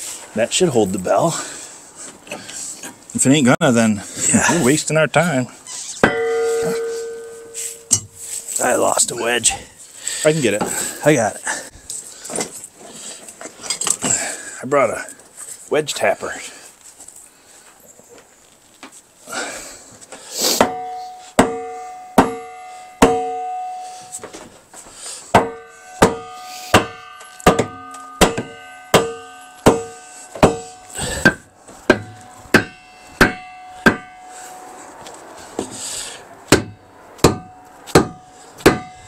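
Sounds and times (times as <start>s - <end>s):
hammer tapping metal wedges: 6.0s - 8.9s, 20.6s - 24.4s, 25.3s - 35.9s, 36.5s - 39.0s.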